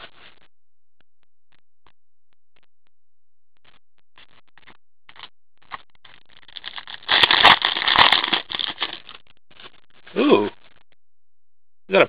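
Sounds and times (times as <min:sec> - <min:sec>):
wrapper tearing and crinkling: 0:06.5 - 0:09.1.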